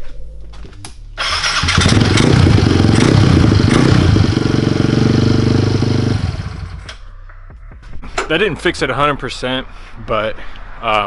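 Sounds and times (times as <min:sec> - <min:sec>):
motorcycle engine revving: 0:01.2 - 0:07.0.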